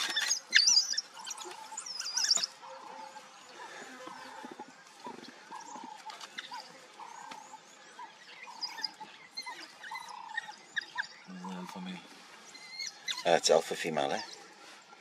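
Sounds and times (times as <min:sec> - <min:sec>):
wild dogs chirping and squeaking: 0:00.0 - 0:14.9.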